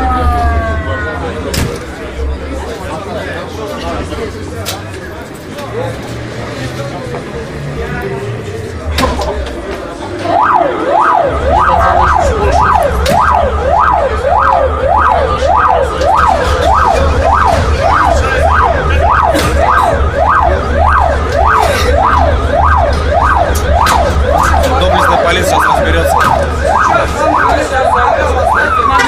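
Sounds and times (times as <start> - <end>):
ambulance siren yelping: 0.0 - 1.8, 9.5 - 29.0.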